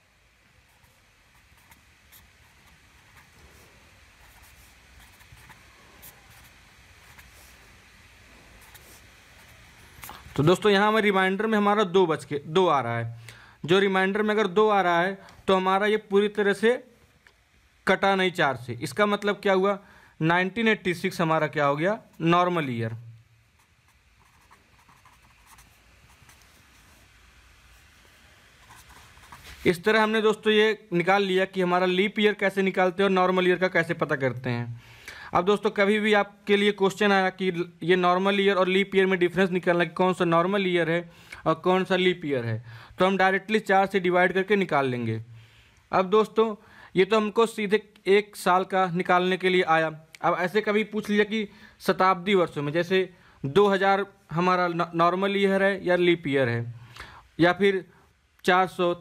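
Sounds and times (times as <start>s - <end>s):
felt-tip pen scratching on paper: 0.7s - 7.7s, 8.4s - 10.3s, 23.6s - 27.1s, 27.7s - 29.7s.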